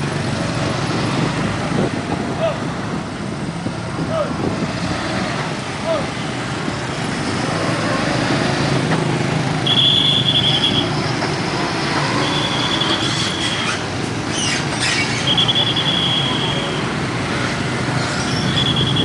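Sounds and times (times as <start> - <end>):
motorcycle traffic: 0.0 - 19.0
high-pitched squeals: 11.6 - 16.8.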